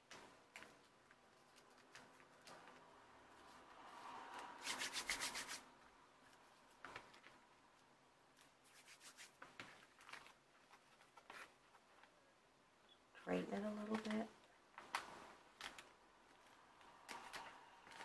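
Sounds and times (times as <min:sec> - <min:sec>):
paper rustling: 0:00.0 - 0:03.6, 0:06.2 - 0:12.2, 0:13.8 - 0:18.0
fingers rubbing on paper: 0:04.6 - 0:05.6, 0:08.6 - 0:09.4.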